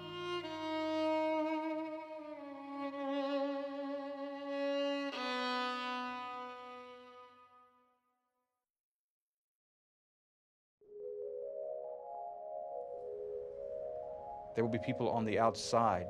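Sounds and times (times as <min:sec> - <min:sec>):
slow violin melody: 0:00.0 - 0:08.0.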